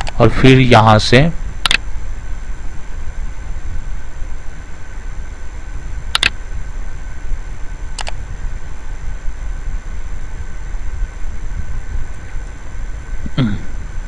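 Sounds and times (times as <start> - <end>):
low rumble and hum: 0.0 - 14.0
computer mouse clicks: 6.1 - 6.4, 8.0 - 8.2.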